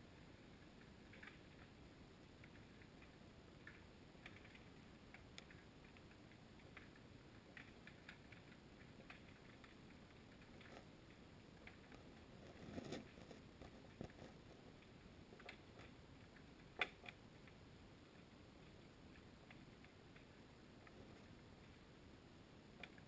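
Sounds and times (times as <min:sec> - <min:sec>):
small irregular clicks: 0:00.0 - 0:23.0.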